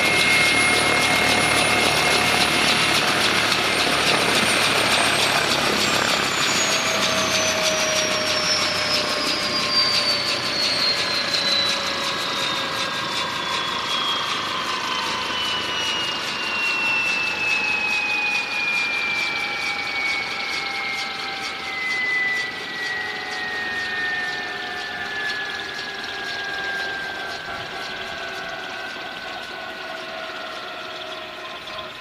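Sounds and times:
rush of engine and rotor: 0:00.0 - 0:32.0
turbine whine falling in pitch: 0:00.0 - 0:32.0.

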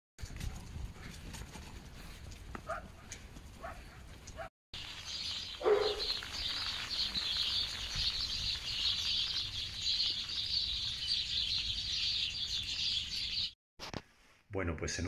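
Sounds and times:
flock of small birds chirping: 0:04.8 - 0:13.6.

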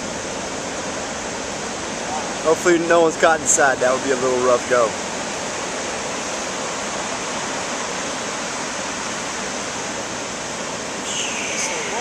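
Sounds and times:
ocean surf breaking: 0:01.4 - 0:12.0.

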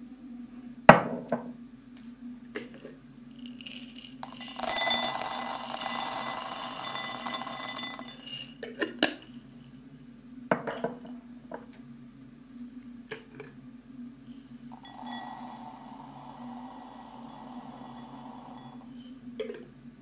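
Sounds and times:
dried peas pouring into bowl: 0:03.4 - 0:08.6, 0:14.7 - 0:18.9
light clinks against bowl: 0:03.6 - 0:08.5.

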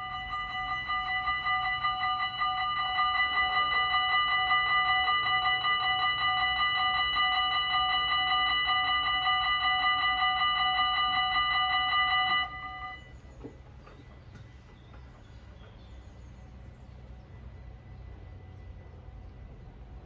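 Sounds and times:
level crossing warning bells: 0:00.0 - 0:14.1.

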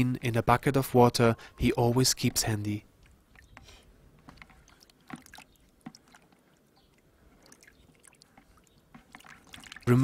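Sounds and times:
water splashes and drips: 0:02.3 - 0:10.0.

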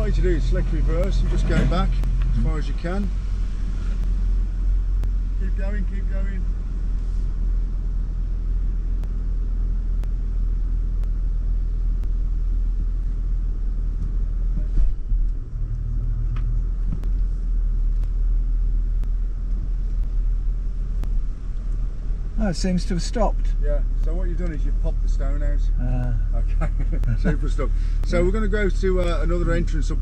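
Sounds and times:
car engine running low: 0:00.0 - 0:30.0
faint ticking from brake: 0:00.0 - 0:30.0.

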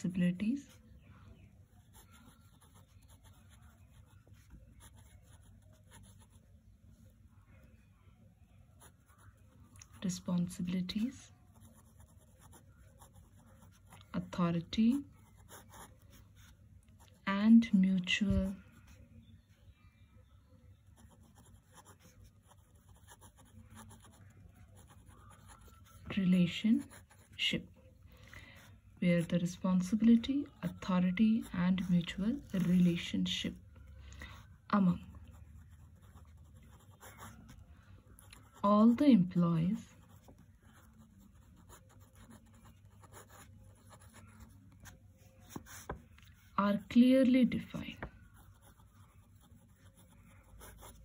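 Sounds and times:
pen scratching on paper: 0:01.8 - 0:06.4, 0:08.8 - 0:17.2, 0:20.9 - 0:27.5, 0:28.6 - 0:33.1, 0:35.3 - 0:37.6, 0:38.2 - 0:46.6, 0:47.6 - 0:51.0
pen writing on paper: 0:40.0 - 0:44.8, 0:48.3 - 0:51.0.

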